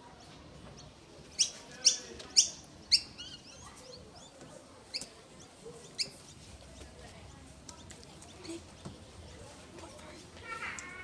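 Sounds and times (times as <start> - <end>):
bird chirps: 0.2 - 6.4.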